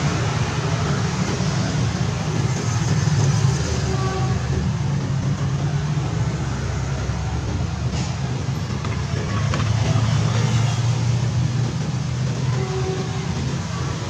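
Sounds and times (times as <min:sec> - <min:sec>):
low drone of engines: 0:00.0 - 0:14.0
motorcycles and cars passing: 0:04.5 - 0:12.6.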